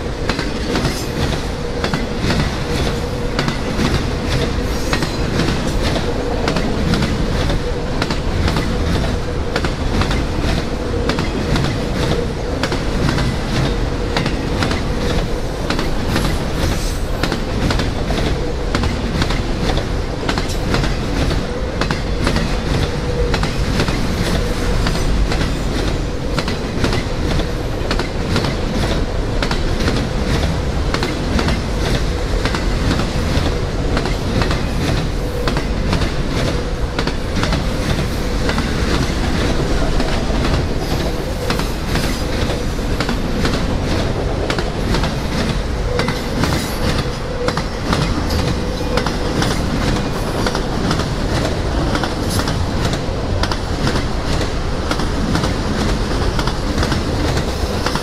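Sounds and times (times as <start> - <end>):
train wheels clattering over rails: 0.0 - 58.0.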